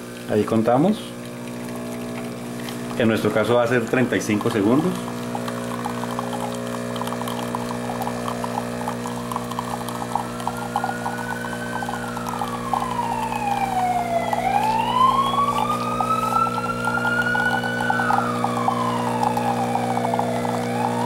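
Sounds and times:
espresso dripping and sputtering: 0.0s - 21.0s
espresso machine humming: 0.0s - 21.0s
gliding whistling tone: 10.2s - 21.0s.

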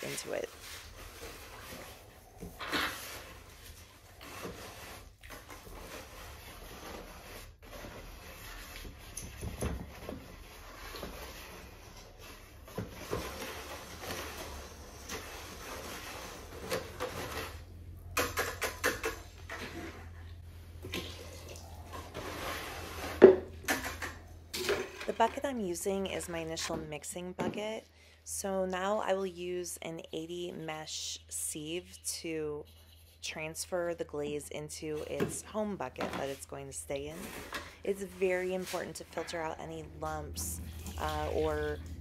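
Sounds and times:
scraping and clatters against bucket: 0.0s - 25.6s, 35.0s - 42.0s.

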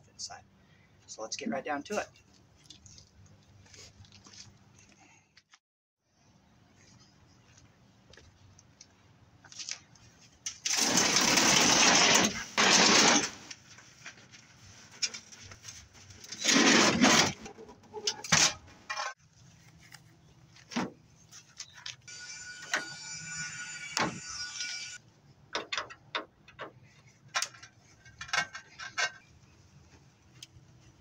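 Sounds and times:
plastic scraping on concrete: 10.6s - 14.2s, 16.2s - 18.5s.

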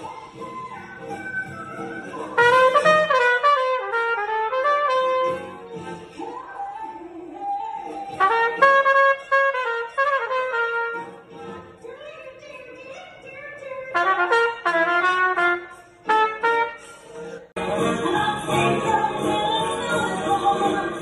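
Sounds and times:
solo trumpet melody: 2.4s - 5.7s, 8.2s - 11.2s, 14.0s - 16.9s.

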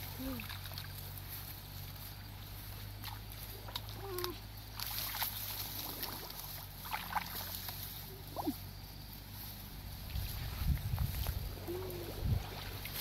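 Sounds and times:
hands sloshing in muddy water: 2.6s - 8.5s, 10.1s - 13.0s.

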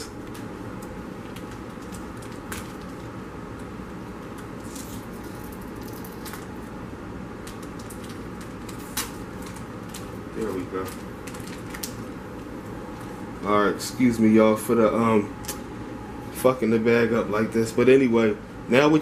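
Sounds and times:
steady background hum: 0.0s - 19.0s
foil and wrapper crinkling: 1.2s - 3.1s, 4.3s - 6.6s, 7.4s - 12.1s.

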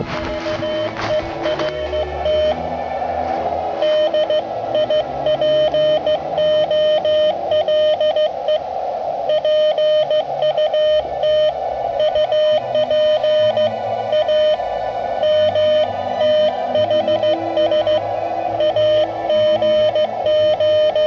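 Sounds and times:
morse code tone: 0.0s - 2.6s, 3.8s - 8.7s, 9.3s - 14.6s, 15.2s - 21.0s
radio receiver hiss: 0.0s - 13.7s.

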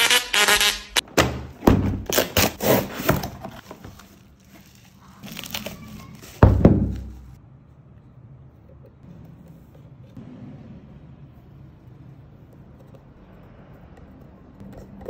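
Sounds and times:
bubble wrap crinkling: 2.1s - 7.4s
heavy thump on table: 6.4s - 7.2s.

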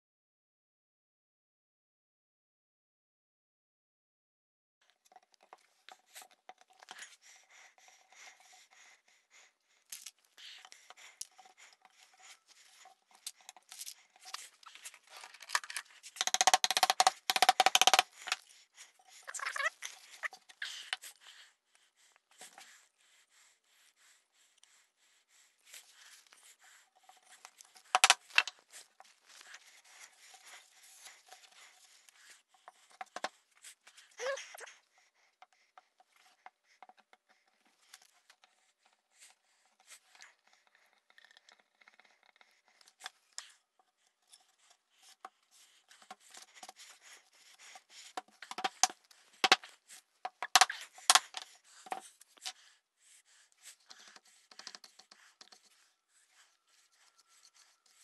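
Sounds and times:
wooden parts clicking and knocking: 9.9s - 18.4s, 27.4s - 29.6s, 48.2s - 52.1s
brush scratching: 10.4s - 21.2s, 56.6s - 57.9s.

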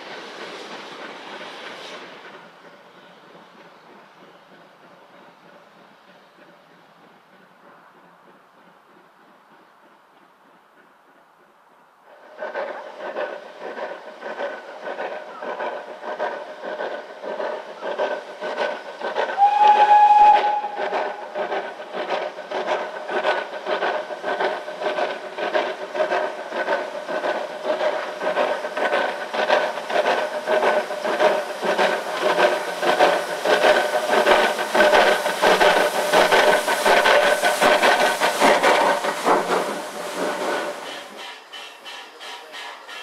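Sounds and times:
steam locomotive chuffing: 0.0s - 43.0s
train whistle blast: 19.4s - 20.8s.

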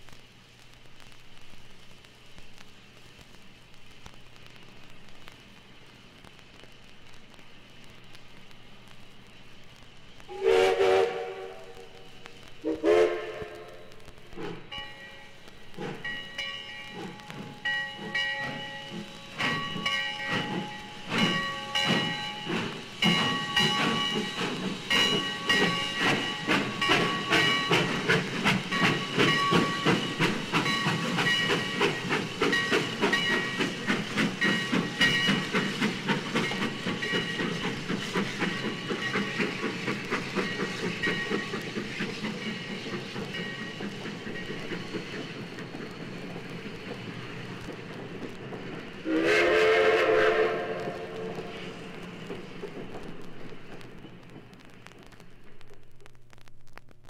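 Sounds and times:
steam whistle blowing: 10.3s - 12.0s, 12.6s - 13.9s, 49.0s - 51.6s
steam locomotive chuffing: 10.3s - 54.6s.

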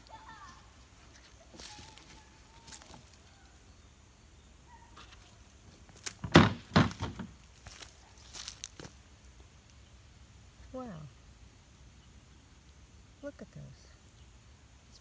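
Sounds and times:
footsteps on dry leaves: 0.1s - 3.5s, 4.9s - 9.1s.

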